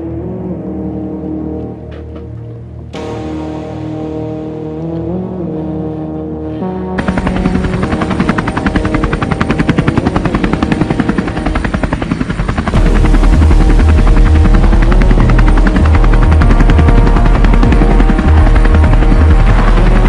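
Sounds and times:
helicopter rotor chop: 7.0s - 20.0s.

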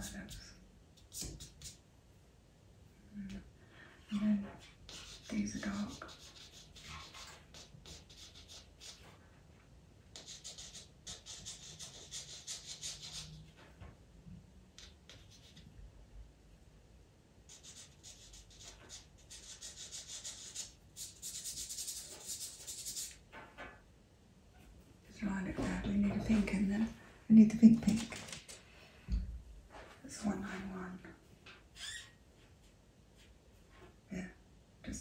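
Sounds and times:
pastel pencil scratching on paper: 1.0s - 1.8s, 4.5s - 9.2s, 10.1s - 13.4s, 14.8s - 15.6s, 17.5s - 23.2s.

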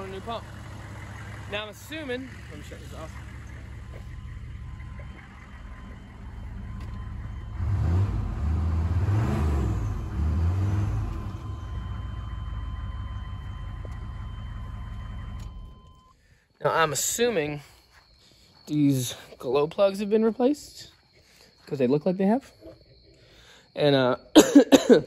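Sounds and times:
engine revving: 0.0s - 16.0s
diesel engine idling: 0.0s - 17.6s.

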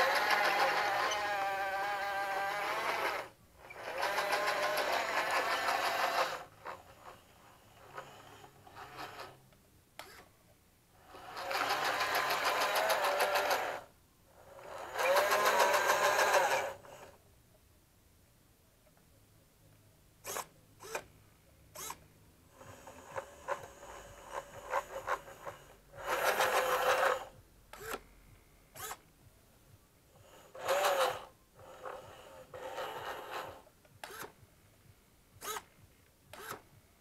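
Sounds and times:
plastic tracks rattling: 0.0s - 7.2s, 11.1s - 13.9s, 14.7s - 17.1s, 23.1s - 27.3s
toy motors whirring: 0.0s - 9.4s, 10.0s - 10.3s, 11.0s - 17.2s, 20.2s - 21.1s, 21.7s - 28.0s, 28.7s - 29.0s, 30.2s - 34.4s, 35.4s - 35.7s, 36.3s - 36.7s.

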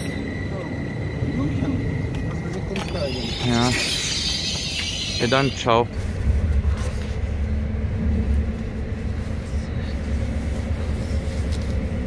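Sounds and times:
train rumble inside carriage: 0.0s - 12.0s.

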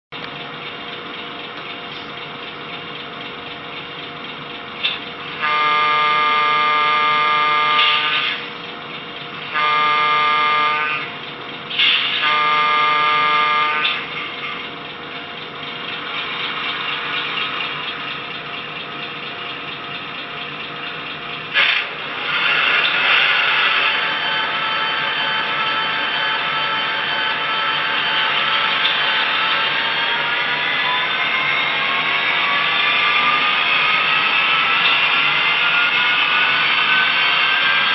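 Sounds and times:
locomotive horn blasts: 5.4s - 8.6s, 9.5s - 11.2s, 11.8s - 14.2s, 21.6s - 31.8s.

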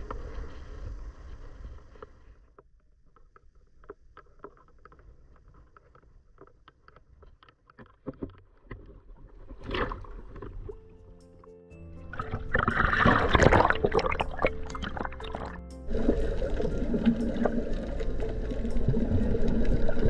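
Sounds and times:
small clicks and crackles: 0.0s - 10.8s
louder wash of water: 12.2s - 20.0s.

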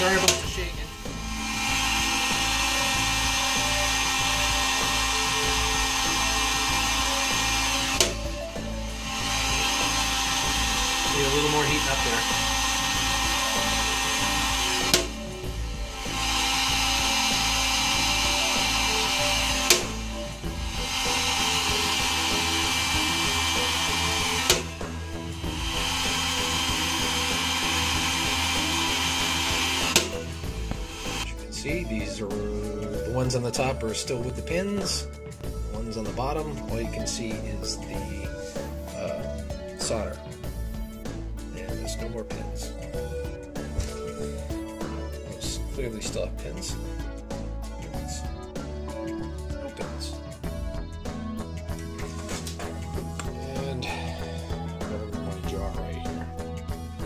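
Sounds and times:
heat gun blowing: 0.0s - 31.5s
sharp click: 8.0s - 8.2s, 19.7s - 19.9s, 29.9s - 30.2s.

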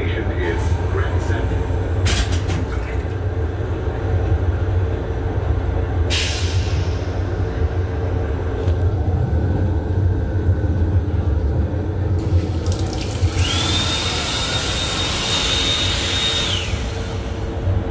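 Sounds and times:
train running rumble: 0.0s - 12.8s, 15.0s - 17.9s
hand dryer whining: 12.9s - 17.4s.

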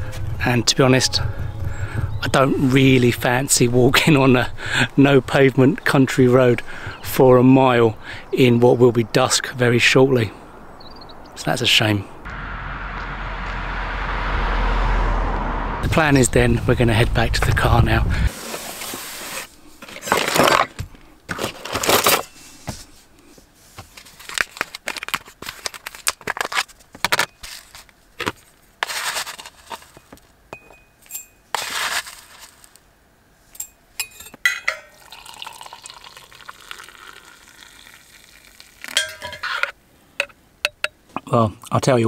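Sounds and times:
packaging rustling and tearing: 24.0s - 30.0s, 31.6s - 32.8s
hot water pouring into mug: 34.9s - 39.3s
metal spoon clinking on ceramic: 39.0s - 41.0s.

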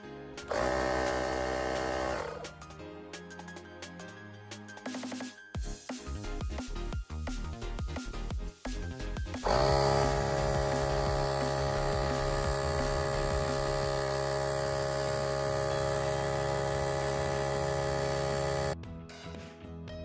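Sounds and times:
background music: 0.0s - 20.0s
air compressor humming drone: 0.5s - 2.6s, 9.4s - 18.8s.

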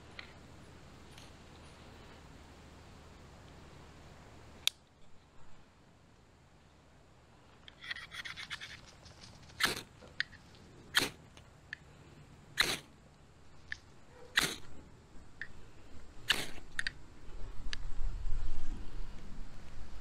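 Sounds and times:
light scratching: 7.7s - 11.1s.

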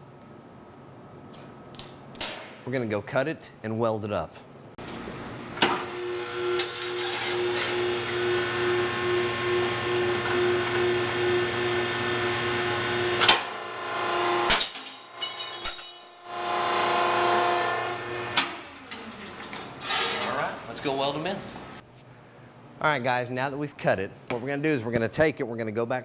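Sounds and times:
hydraulic machine motor humming: 5.8s - 14.5s.

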